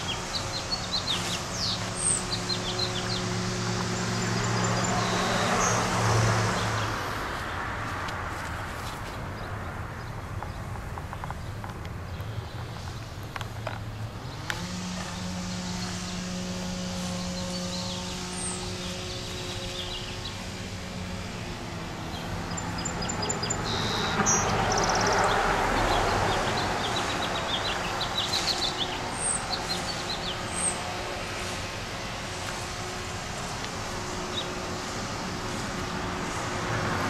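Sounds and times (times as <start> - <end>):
small birds chirping: 0.0 - 7.0, 9.1 - 35.7
vehicle passing by: 0.0 - 37.0
low droning hum: 14.1 - 23.4.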